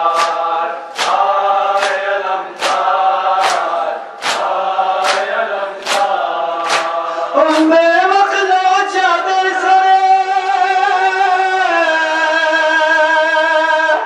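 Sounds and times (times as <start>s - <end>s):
men chanting a lament in unison: 0.0s - 14.0s
hands beating on bare chests: 2.6s - 6.9s.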